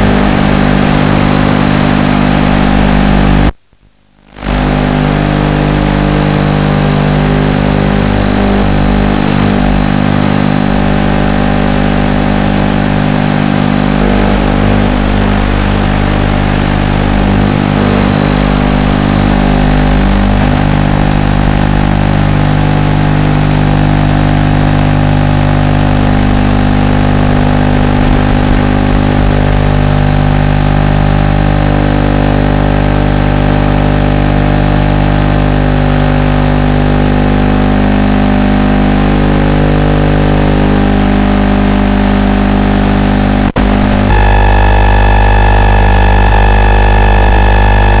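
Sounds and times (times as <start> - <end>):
electrical buzz: 0.0 - 3.5, 4.2 - 48.0.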